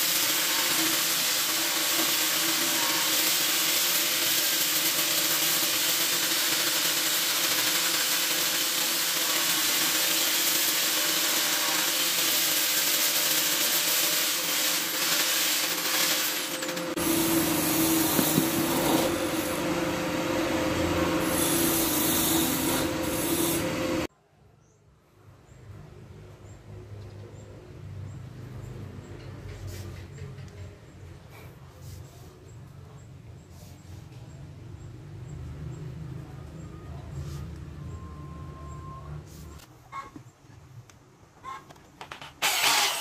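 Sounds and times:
angle grinder sanding wood: 0:00.0 - 0:24.1, 0:42.4 - 0:43.0.

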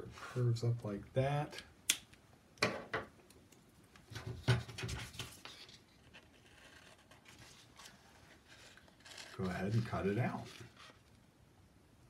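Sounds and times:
paper rustling: 0:04.1 - 0:11.2.

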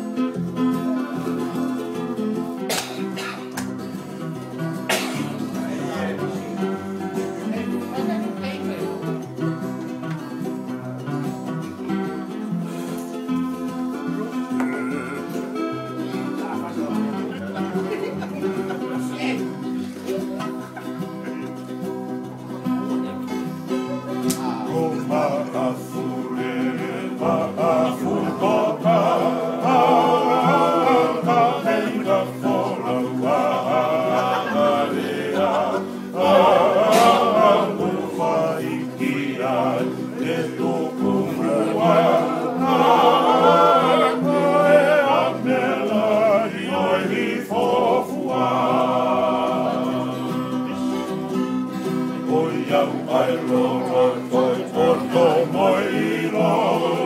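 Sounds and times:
strummed acoustic guitars: 0:00.0 - 0:57.0
ukulele: 0:00.0 - 0:57.0
men singing together: 0:04.9 - 0:08.1, 0:14.2 - 0:15.8, 0:24.3 - 0:57.0.

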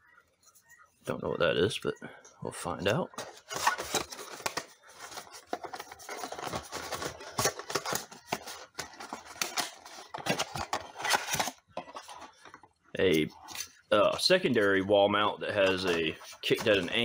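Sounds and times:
cardboard rustling and scraping: 0:03.1 - 0:12.6, 0:15.6 - 0:17.0.

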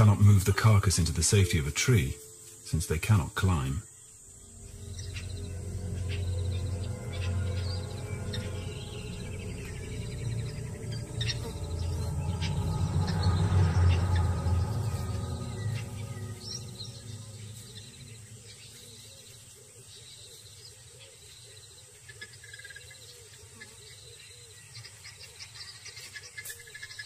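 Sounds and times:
frogs calling: 0:00.0 - 0:27.0
insects trilling: 0:00.0 - 0:27.0
low rumble: 0:04.2 - 0:20.0.

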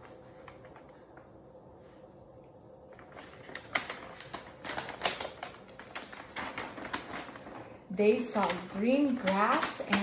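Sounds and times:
large paper page turning: 0:00.0 - 0:02.0, 0:02.9 - 0:10.0.

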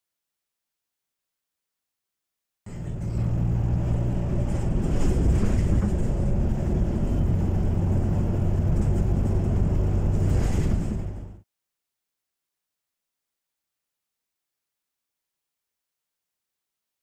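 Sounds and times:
power lines humming: 0:02.7 - 0:11.4
crackling rushing noise: 0:03.5 - 0:11.4.

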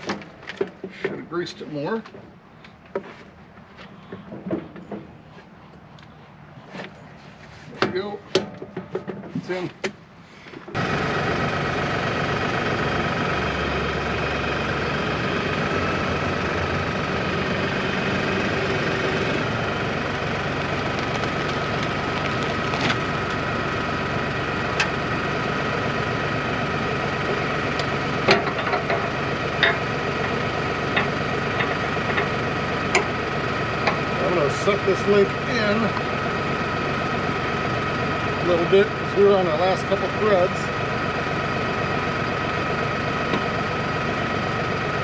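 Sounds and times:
diesel tractor engine idling: 0:09.4 - 0:45.0.

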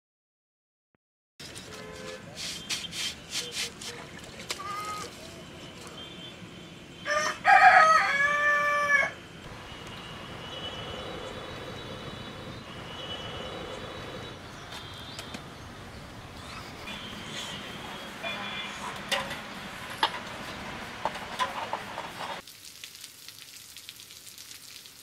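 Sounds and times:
rooster crowing: 0:07.0 - 0:09.2.

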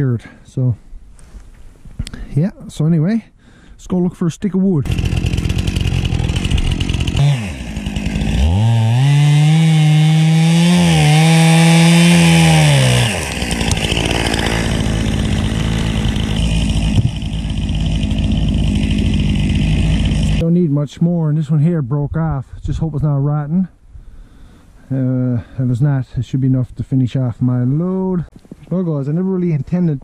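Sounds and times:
chainsaw cutting tree trunk: 0:04.8 - 0:20.4.

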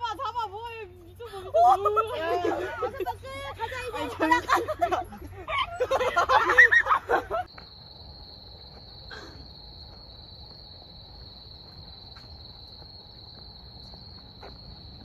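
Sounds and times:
crickets trilling: 0:01.6 - 0:15.0.

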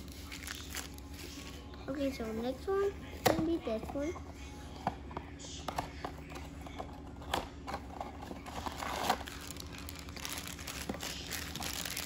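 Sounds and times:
packaging crinkling and tearing: 0:00.0 - 0:01.4, 0:08.4 - 0:12.0.

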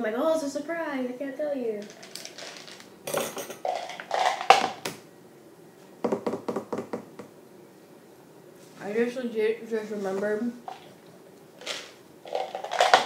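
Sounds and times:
rustling and clattering: 0:01.8 - 0:04.8, 0:11.6 - 0:13.0.

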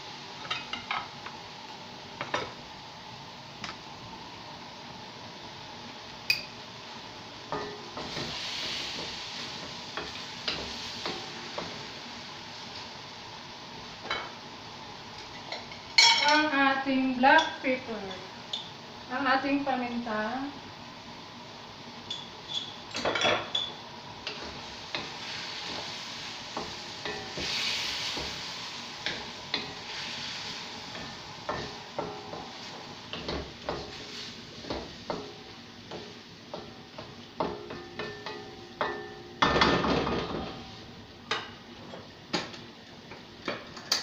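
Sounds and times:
frying sizzle: 0:00.0 - 0:44.0
spatula knocking and scraping wok: 0:07.5 - 0:11.9, 0:24.2 - 0:30.0, 0:30.9 - 0:40.6.

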